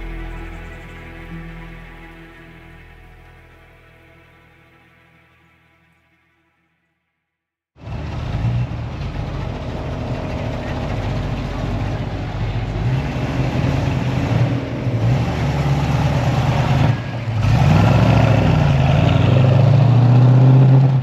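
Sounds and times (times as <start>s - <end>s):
car engine and exhaust: 7.8s - 21.0s.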